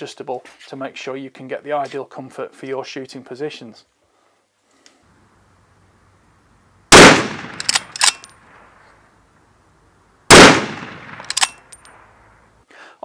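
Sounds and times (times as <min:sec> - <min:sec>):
rifle shots: 0:06.9 - 0:08.3, 0:10.3 - 0:12.2
sharp metallic clicks: 0:07.0 - 0:08.4, 0:10.3 - 0:12.0.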